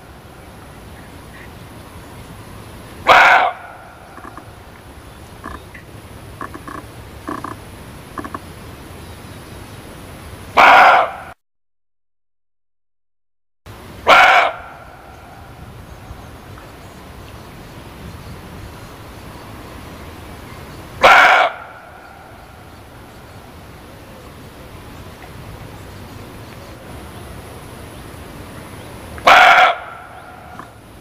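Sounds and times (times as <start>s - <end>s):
steady background noise: 0.0s - 11.4s, 13.7s - 31.0s
deer barking: 3.0s - 4.5s, 10.6s - 11.3s, 14.0s - 15.0s, 21.0s - 22.3s, 29.2s - 30.8s.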